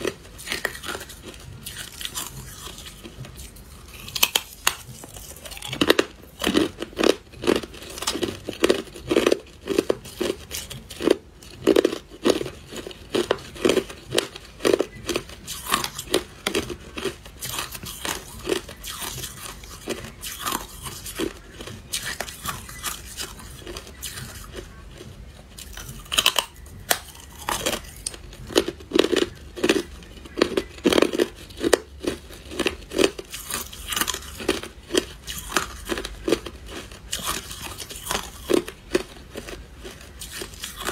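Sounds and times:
ice being chewed crunching: 0:00.0 - 0:40.9.

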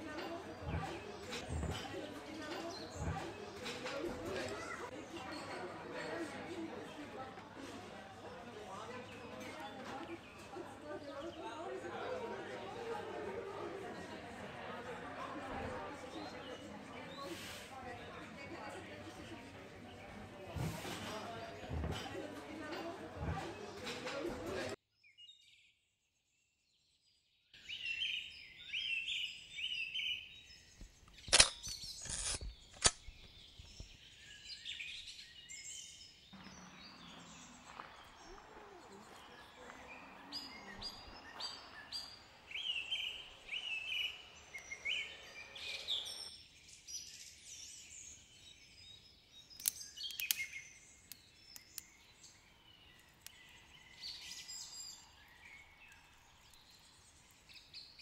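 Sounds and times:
birds chirping and singing: 0:27.6 - 0:58.0
sharp clicks: 0:31.0 - 0:33.3, 0:49.6 - 0:50.5.

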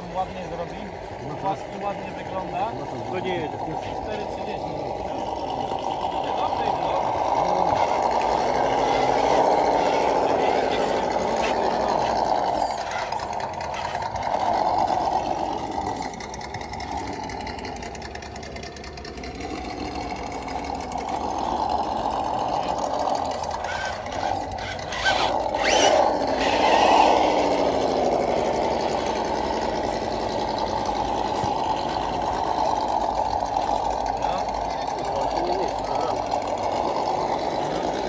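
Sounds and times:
rc truck motor whining: 0:03.2 - 0:34.4.

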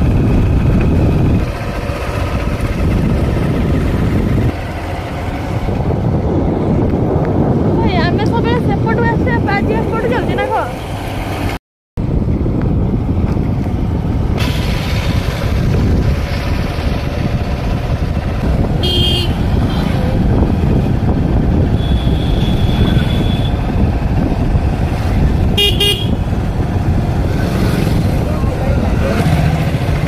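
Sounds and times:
road traffic rumble: 0:00.0 - 0:30.0
vehicle horns tooting: 0:18.8 - 0:20.0, 0:21.7 - 0:23.6, 0:25.6 - 0:26.2.

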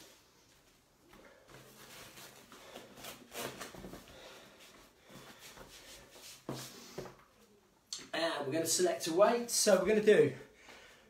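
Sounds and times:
exercise mat rustling and flapping: 0:00.0 - 0:07.2.

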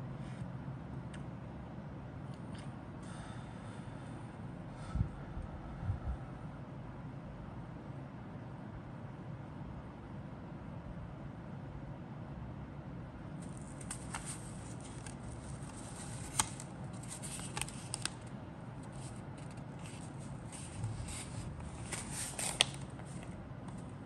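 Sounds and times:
paper rustling and crinkling: 0:13.4 - 0:23.9.

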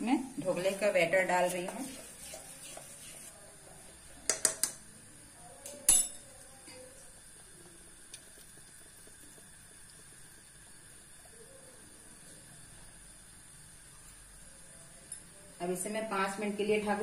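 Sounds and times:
metal utensils clinking on pot: 0:05.9 - 0:06.8.

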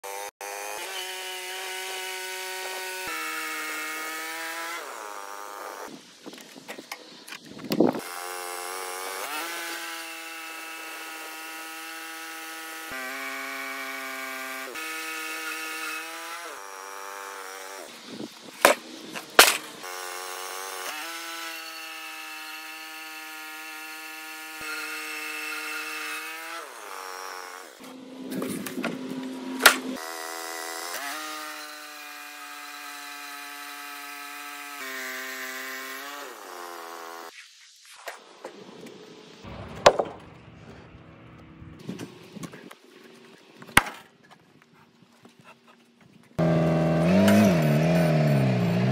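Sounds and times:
bandsaw sawmill cutting log: 0:00.0 - 0:06.0, 0:07.7 - 0:37.4, 0:46.4 - 0:48.9
sharp loud knocks: 0:39.6 - 0:40.4.

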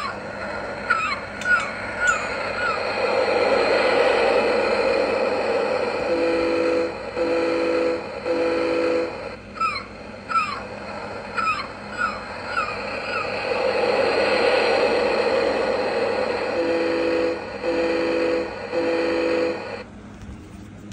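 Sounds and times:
seagull cries: 0:00.0 - 0:02.9, 0:09.6 - 0:10.7, 0:11.3 - 0:13.4
electronic foghorn blasts: 0:05.8 - 0:09.6, 0:16.3 - 0:19.8.

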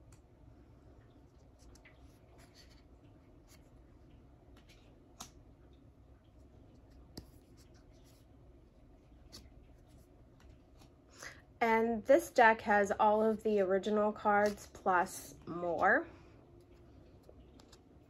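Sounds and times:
cards rustling and clicking: 0:04.5 - 0:05.4, 0:09.0 - 0:11.0, 0:14.4 - 0:14.8.

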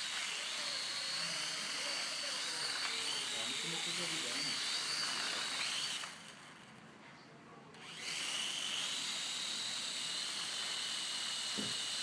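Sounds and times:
drone propellers whining: 0:00.0 - 0:06.5.

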